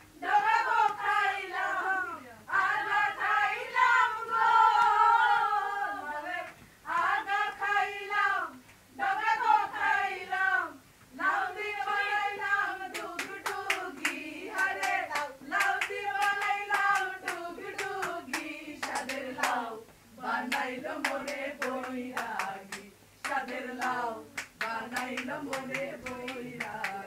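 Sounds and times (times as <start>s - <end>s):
group of people singing: 0.0s - 27.0s
hand-clapping in time: 12.9s - 19.7s, 20.5s - 27.0s.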